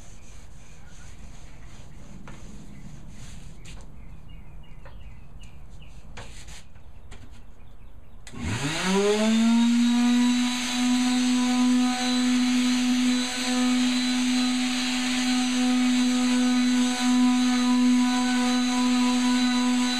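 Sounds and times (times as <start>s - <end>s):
rag rubbing on wood: 0.0s - 3.9s, 5.8s - 6.8s
electric sander running: 8.3s - 19.9s.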